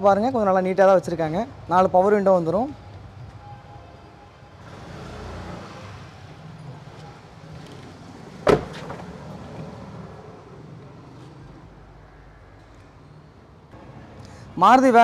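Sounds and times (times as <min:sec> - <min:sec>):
car door shutting: 0:07.7 - 0:09.2.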